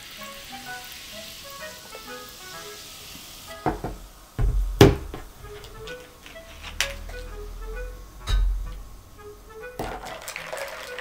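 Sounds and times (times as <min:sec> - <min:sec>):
hiss: 0:00.0 - 0:09.6
background music: 0:00.0 - 0:11.0
bottle thumping on wooden table: 0:03.6 - 0:05.7.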